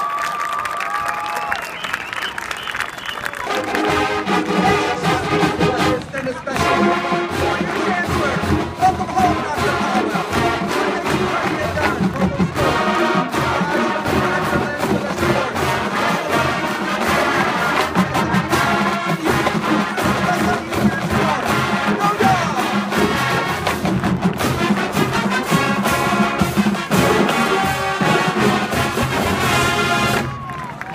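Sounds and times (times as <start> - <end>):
marching band brass: 0.2 - 30.9
driving drum beat: 3.8 - 30.4.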